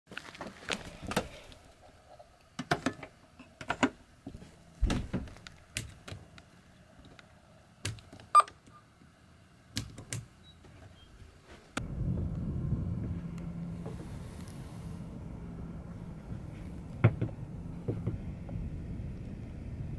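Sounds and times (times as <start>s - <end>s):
low engine hum: 11.8s - 19.9s.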